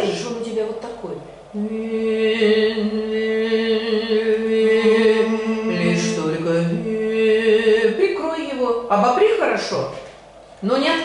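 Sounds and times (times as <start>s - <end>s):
man singing held vowel: 1.5s - 7.9s.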